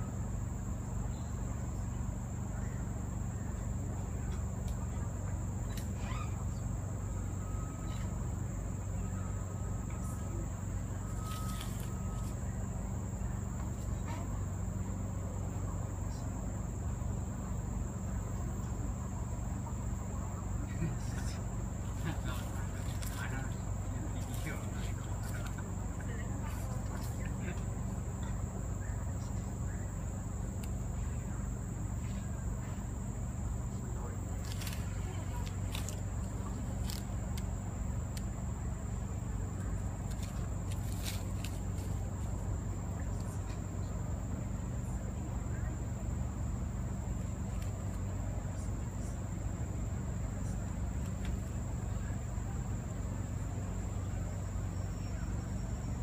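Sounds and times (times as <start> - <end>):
constant low hum: 0.0 - 56.0
forest insects droning: 0.0 - 56.0
low steady rumble: 0.0 - 56.0
faint thin whistle: 6.0 - 6.4, 11.0 - 12.4
lizard scratching in leaf litter: 11.1 - 12.4, 21.9 - 25.6, 34.4 - 37.1, 40.1 - 42.4.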